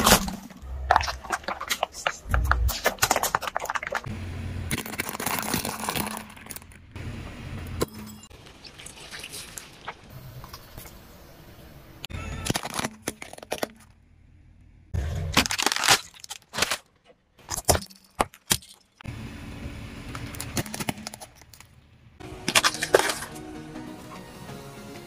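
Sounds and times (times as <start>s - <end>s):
plastic cracking under car tyre: 0.0s - 4.1s, 4.7s - 6.8s, 15.3s - 18.8s, 22.4s - 23.4s.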